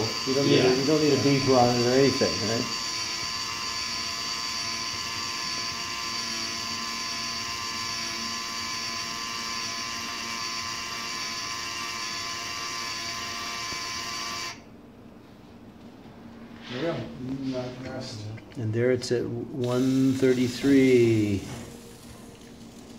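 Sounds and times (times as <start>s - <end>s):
electric motor whirring: 0.0s - 14.6s, 19.6s - 22.9s.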